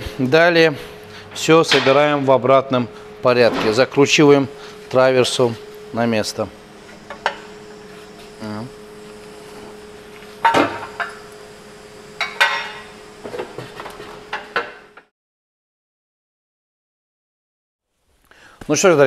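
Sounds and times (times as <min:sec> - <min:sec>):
metal tools clanking: 0:01.3 - 0:02.4.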